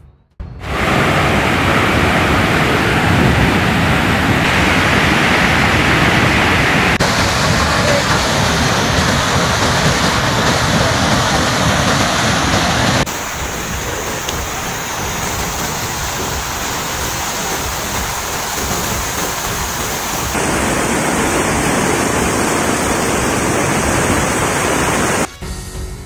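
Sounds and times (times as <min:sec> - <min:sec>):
flood water rushing: 0:00.6 - 0:25.3.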